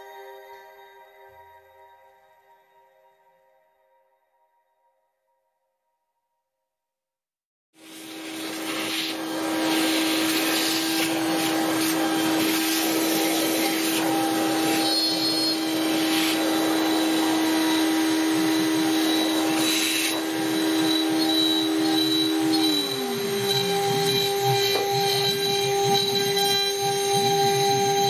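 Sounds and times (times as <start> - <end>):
router spindle whine: 7.8 - 28.0.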